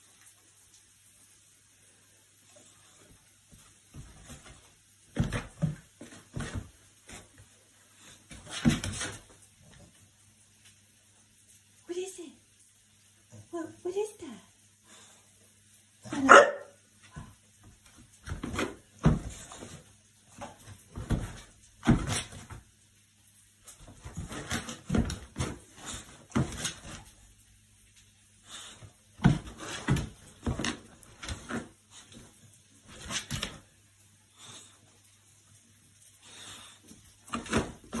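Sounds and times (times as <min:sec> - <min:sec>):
dog thumping and scuffing: 0:03.5 - 0:10.0, 0:17.0 - 0:22.7, 0:23.6 - 0:27.2, 0:29.2 - 0:33.7, 0:36.9 - 0:38.0.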